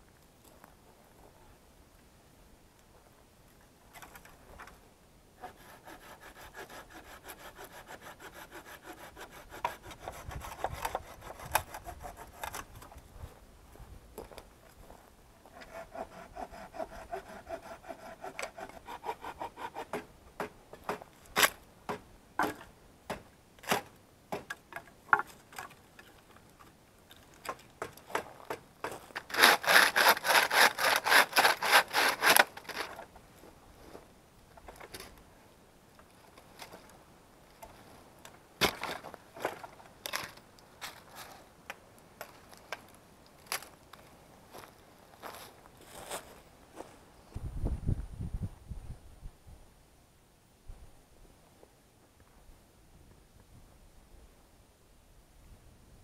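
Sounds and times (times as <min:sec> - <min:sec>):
hand saw cutting wood: 0:05.4 - 0:12.7, 0:15.5 - 0:20.1, 0:29.2 - 0:33.0.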